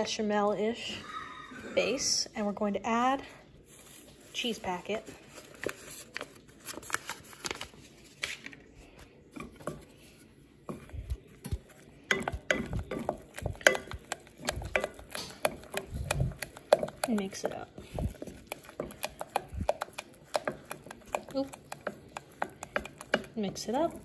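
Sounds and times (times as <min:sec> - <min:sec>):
wooden spatula knocking on saucepan: 0:12.1 - 0:17.2, 0:17.8 - 0:24.0.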